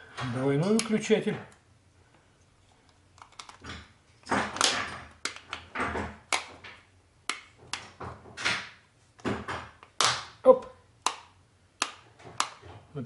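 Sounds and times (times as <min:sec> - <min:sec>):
sharp plastic clicks: 0:11.0 - 0:12.8.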